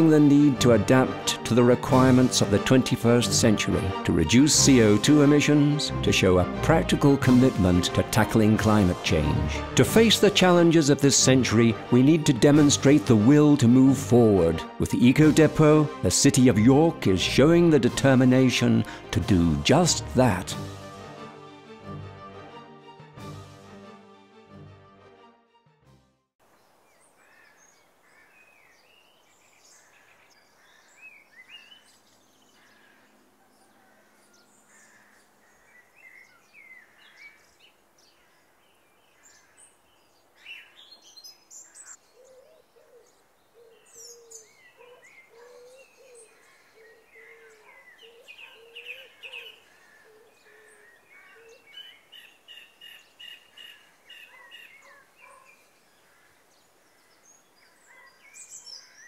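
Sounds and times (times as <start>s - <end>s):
small birds chirping and warbling: 26.5s - 59.0s
low wavering bird call: 41.9s - 51.9s.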